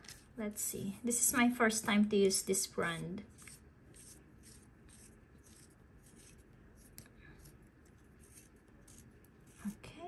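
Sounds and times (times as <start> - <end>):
faint scratchy rubbing of pen: 3.3 - 10.0.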